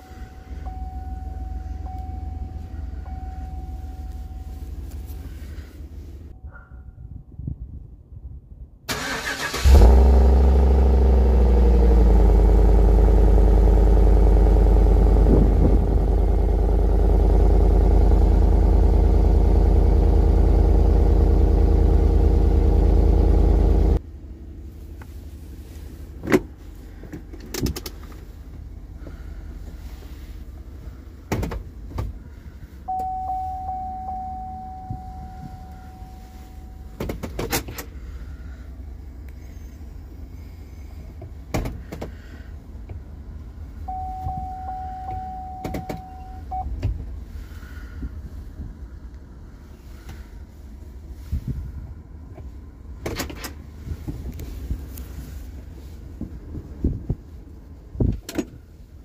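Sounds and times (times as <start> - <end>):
engine hum inside cabin: 0.0 - 6.7, 8.8 - 59.0
engine starting and idling: 8.9 - 15.0, 32.2 - 42.9
steady electronic tone: 32.9 - 36.9.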